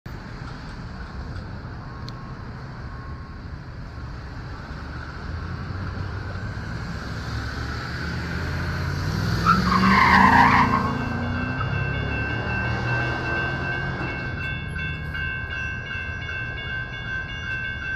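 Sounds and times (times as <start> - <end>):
cars crossing railroad crossing: 0.1 - 17.9
crossing bell ringing: 10.5 - 17.9.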